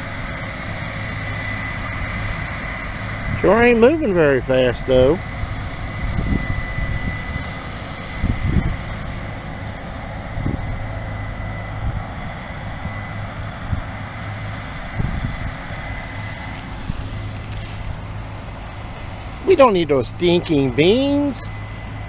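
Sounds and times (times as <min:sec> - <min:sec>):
combine engine drone: 0:00.0 - 0:22.0
thin high whine: 0:00.0 - 0:22.0
wind gusts thumping on microphone: 0:04.8 - 0:11.0, 0:11.7 - 0:19.5.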